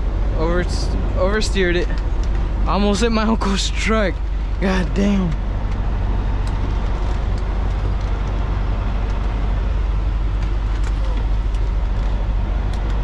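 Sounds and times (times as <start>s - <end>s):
diesel truck engine rumbling: 0.0s - 13.0s.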